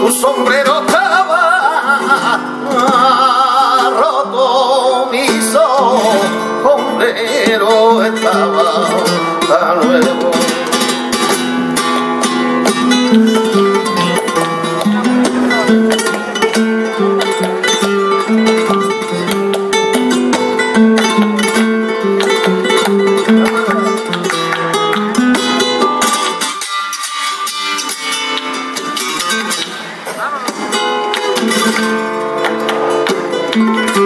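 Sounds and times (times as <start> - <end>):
man singing: 0.0 - 11.4
flamenco guitar: 0.0 - 34.0
hand-clapping: 10.3 - 29.7, 30.4 - 34.0.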